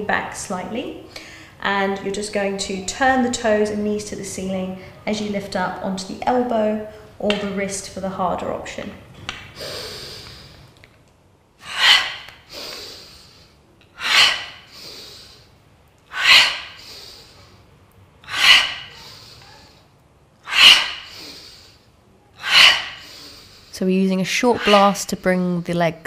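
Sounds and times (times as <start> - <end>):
soft breathing: 1.0 - 1.6, 9.5 - 10.8, 11.6 - 23.8
woman's sharp breaths out: 11.6 - 15.5.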